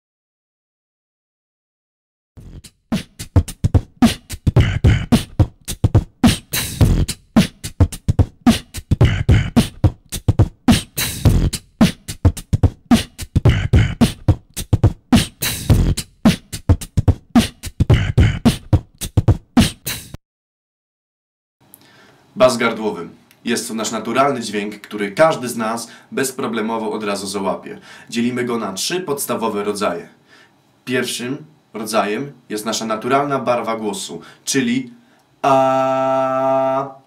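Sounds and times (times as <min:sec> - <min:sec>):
beatboxing: 0:02.4 - 0:20.2.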